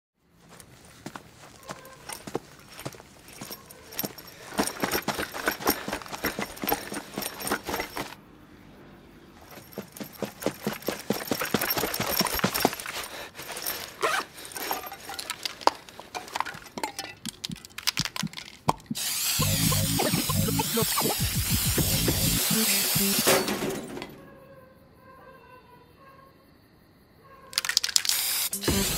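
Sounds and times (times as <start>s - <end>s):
sharp clicks and clattering knocks: 15.2s - 24.1s.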